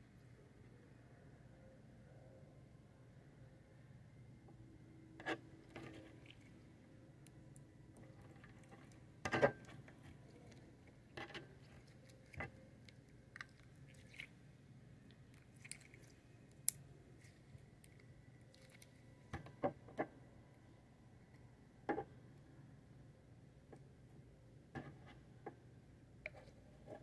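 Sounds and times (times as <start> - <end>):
faint low hum: 0.0 - 27.0
slime squelching: 10.2 - 14.4, 15.1 - 19.1.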